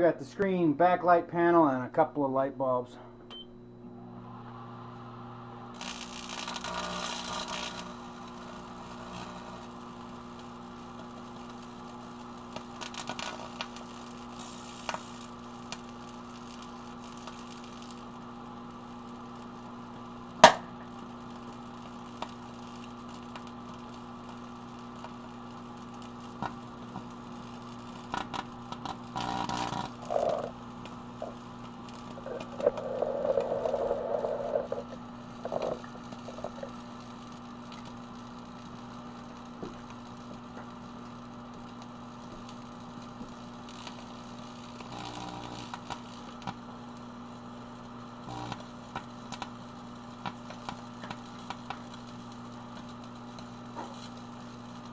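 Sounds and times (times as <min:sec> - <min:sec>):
microwave oven humming: 0:02.8 - 0:54.9
buzzing electrical arcing: 0:05.7 - 0:54.9
loud sharp crack: 0:20.4 - 0:20.8.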